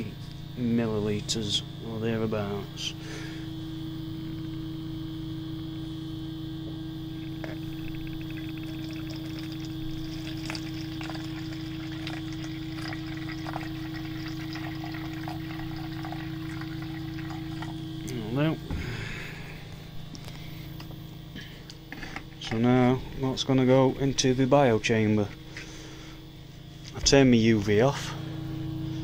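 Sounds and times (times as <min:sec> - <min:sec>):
steady low hum: 0:00.0 - 0:29.0
liquid trickling into plastic jug: 0:07.2 - 0:17.9.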